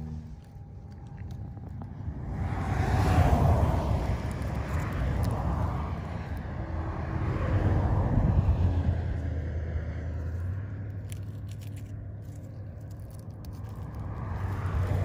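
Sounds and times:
motor vehicle hum: 0.0s - 15.0s.

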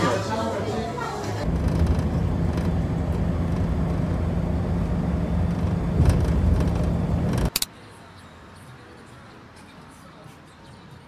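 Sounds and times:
vehicle rumble from inside cabin: 1.4s - 7.5s.

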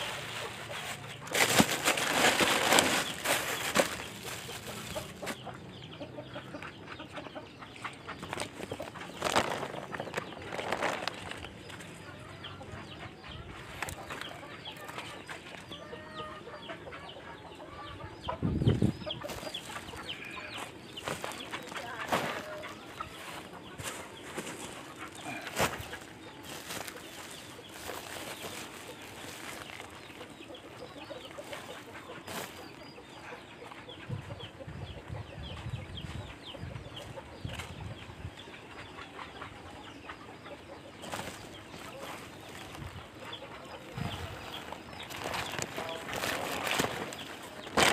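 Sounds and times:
plastic sacks rustling: 0.0s - 5.4s, 8.2s - 11.5s, 19.2s - 30.2s, 31.5s - 32.6s, 41.0s - 43.0s, 43.9s - 47.9s
bird calls: 0.0s - 47.9s.

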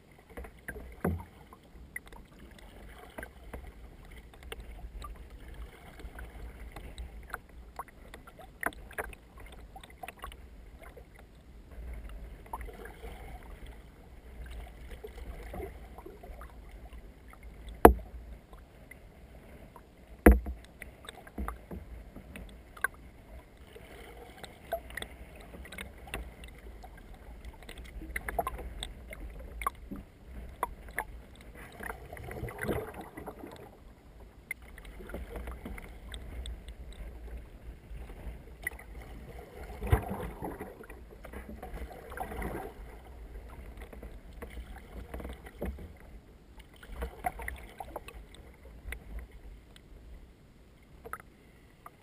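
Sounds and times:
canoe paddle splashing in water: 11.8s - 33.8s, 34.5s - 49.2s.

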